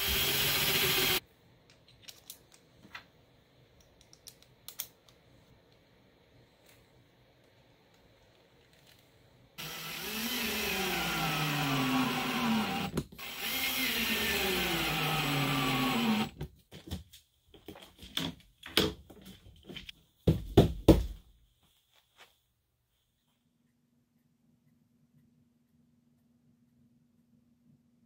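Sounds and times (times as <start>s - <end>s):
cordless drill driving screws: 0.0s - 1.2s, 9.6s - 16.3s.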